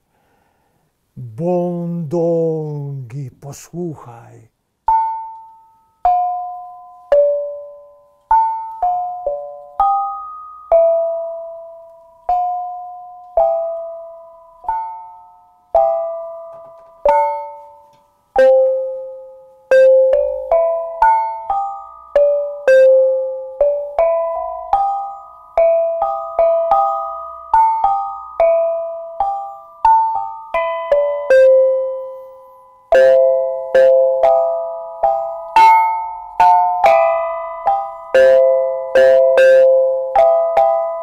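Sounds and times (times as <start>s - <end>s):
kettle gongs playing a melody: 32.9s - 41.0s.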